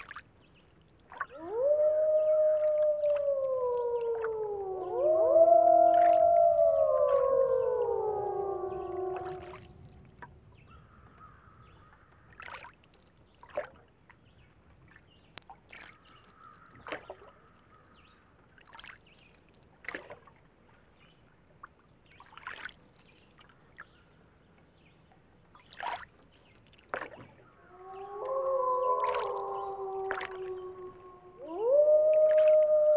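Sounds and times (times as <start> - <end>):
soft water splashes: 0.0 - 24.1, 25.5 - 32.9
wolf howl: 1.3 - 10.0, 27.6 - 32.9.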